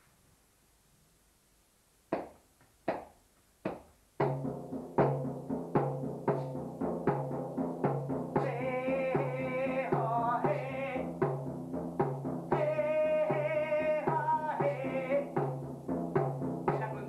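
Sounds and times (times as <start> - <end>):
live drumming: 3.7 - 17.0.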